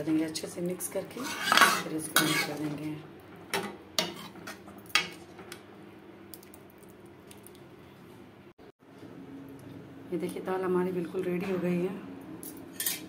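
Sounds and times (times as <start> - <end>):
metal ladle scraping a metal pan: 1.0 - 2.8.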